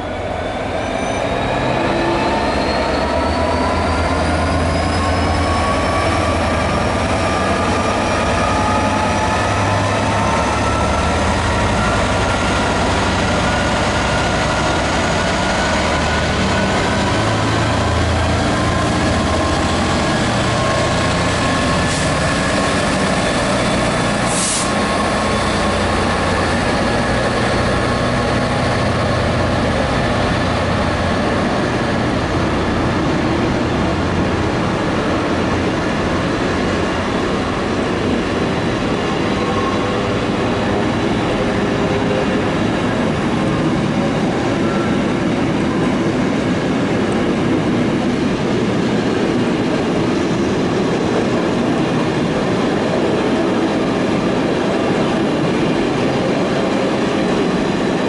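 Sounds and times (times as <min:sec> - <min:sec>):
diesel locomotive pulling away: 0:00.0 - 0:58.0
short high hisses: 0:24.3 - 0:24.8.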